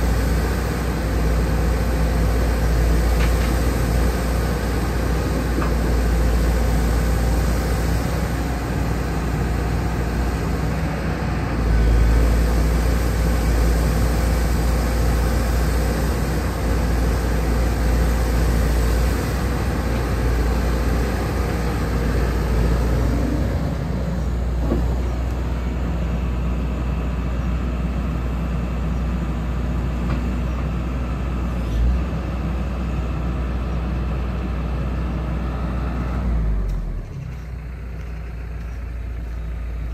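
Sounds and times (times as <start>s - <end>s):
hydraulics working: 0.0s - 28.4s
excavator diesel engine rumbling: 0.0s - 39.9s.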